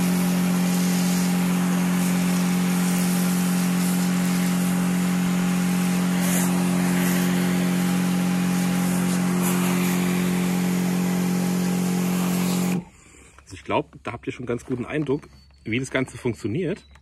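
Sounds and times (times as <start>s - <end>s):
water jet spraying on stone: 0.0s - 12.8s
electric pump humming: 0.0s - 13.0s.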